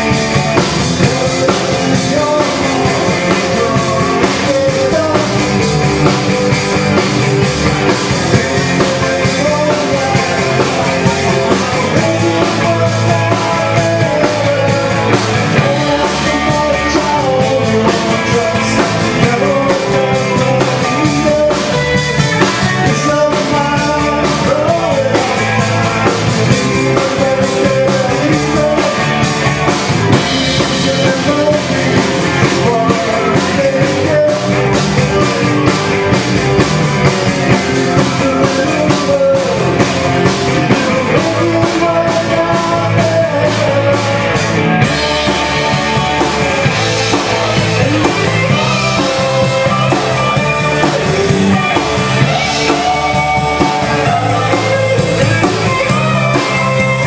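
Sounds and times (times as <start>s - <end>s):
bass guitar: 0.0s - 57.0s
drum kit: 0.0s - 57.0s
electric guitars: 0.0s - 57.0s.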